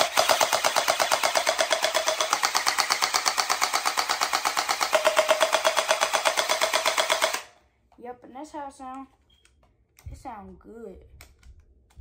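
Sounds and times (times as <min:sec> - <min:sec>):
toy blaster rapid firing: 0:00.0 - 0:07.5.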